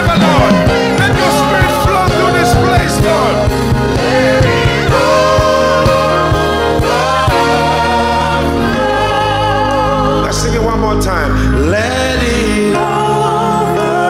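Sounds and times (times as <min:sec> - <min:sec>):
sustained chords: 0:00.0 - 0:02.8
steady drum beat: 0:00.0 - 0:05.2
gospel voices singing: 0:00.0 - 0:14.0.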